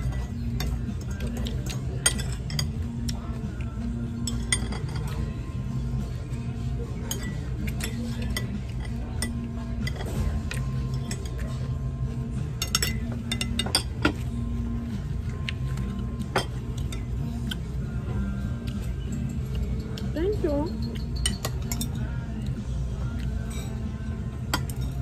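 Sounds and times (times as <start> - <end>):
forks clinking on plates: 0.0 - 5.4, 6.9 - 11.7, 12.4 - 14.3, 15.3 - 17.6, 18.7 - 22.5, 23.1 - 25.0
background music: 0.0 - 25.0.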